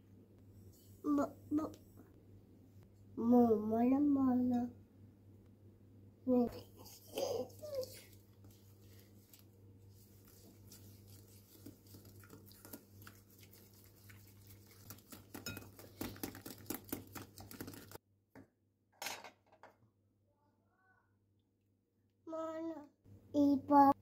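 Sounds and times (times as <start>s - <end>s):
whisk clattering in bowl: 11.1s - 18.0s.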